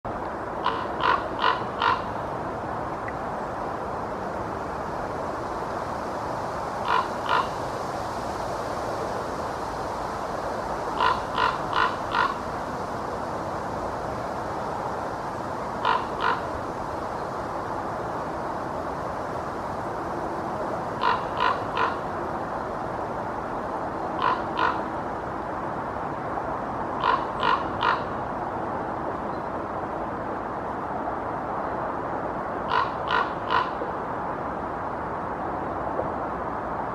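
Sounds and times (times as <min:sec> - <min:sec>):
steady background hum: 0:00.1 - 0:36.9
raven croaking: 0:00.6 - 0:02.2, 0:06.8 - 0:07.6, 0:10.9 - 0:12.4, 0:15.8 - 0:16.5, 0:21.0 - 0:22.1, 0:24.2 - 0:24.9, 0:27.0 - 0:28.2, 0:32.7 - 0:33.8.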